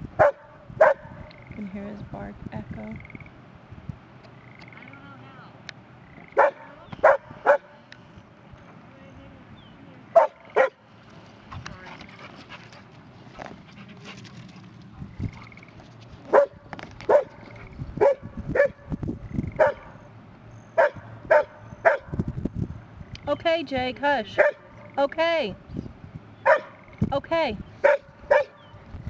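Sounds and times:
dog barking: 0.2s - 1.2s, 6.4s - 7.7s, 10.2s - 10.8s, 16.3s - 17.4s, 18.0s - 18.9s, 19.6s - 19.9s, 20.8s - 22.1s, 24.4s - 24.7s, 26.4s - 26.8s, 27.8s - 28.6s.

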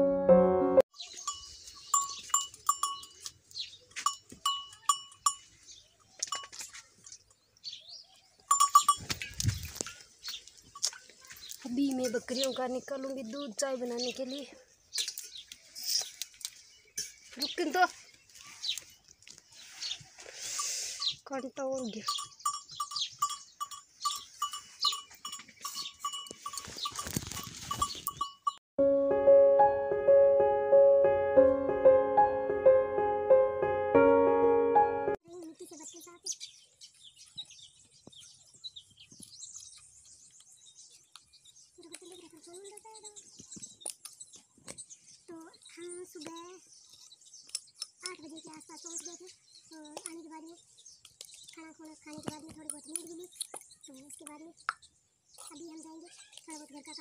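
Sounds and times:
intro music: 0.0s - 0.8s, 28.8s - 35.2s
goat bell clinking: 1.0s - 5.6s, 6.2s - 6.9s, 8.4s - 12.2s, 20.6s - 28.6s.

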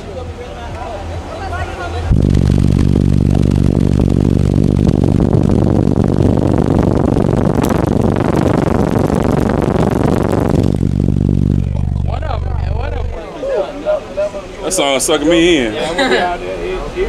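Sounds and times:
loud deep bass from car subwoofers: 2.0s - 13.3s.

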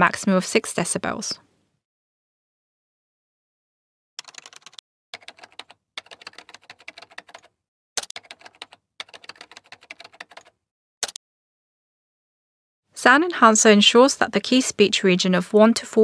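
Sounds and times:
rapid keyboard typing clicks: 4.2s - 11.2s.

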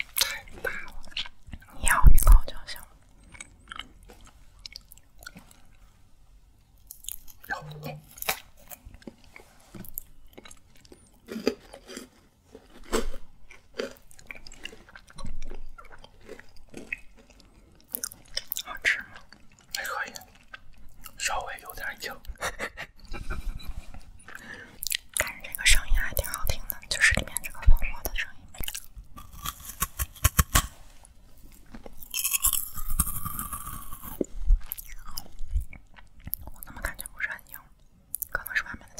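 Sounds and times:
candy chewing and crunching: 0.0s - 5.9s, 6.8s - 22.4s, 24.1s - 38.9s.

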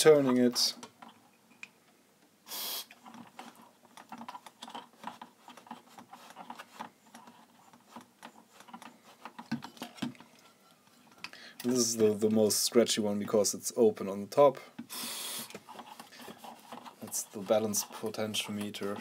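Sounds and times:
aerosol spray hiss: 2.5s - 2.9s
knobs clicking and scraping: 2.9s - 13.5s, 15.5s - 19.0s.

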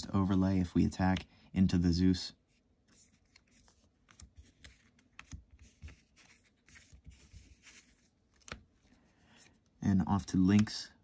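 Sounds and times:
trading cards tapping and sliding: 2.9s - 8.7s, 10.2s - 10.8s.

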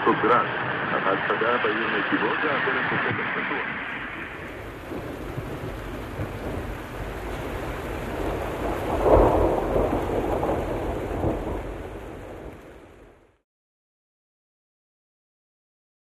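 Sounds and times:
heavy rain: 0.0s - 13.4s
thunder rumbling: 3.0s - 13.4s.

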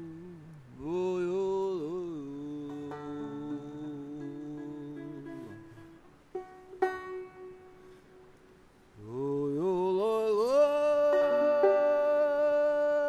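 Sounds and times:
man chanting: 0.0s - 5.9s, 9.0s - 13.0s
plucked banjo notes: 0.8s - 13.0s.

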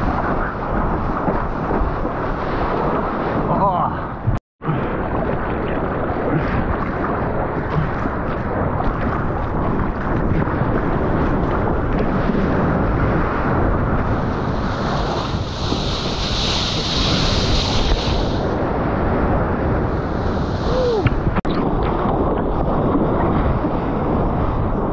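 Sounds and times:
seawater rushing and splashing: 0.0s - 24.9s
wind buffeting microphone: 0.0s - 24.9s
breaking whitewater hiss: 14.4s - 18.5s.

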